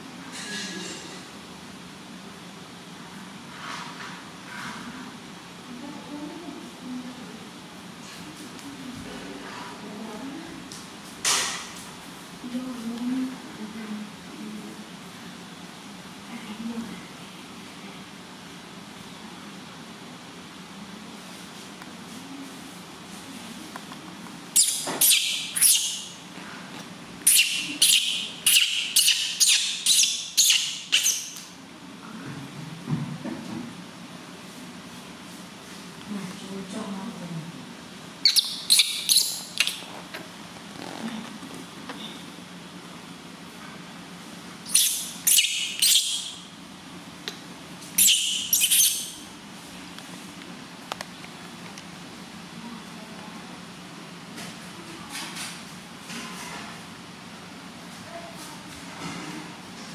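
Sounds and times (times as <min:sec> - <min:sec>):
baby monkey crying: 0:27.2 - 0:31.4, 0:38.2 - 0:39.8, 0:44.7 - 0:46.4, 0:48.0 - 0:49.2.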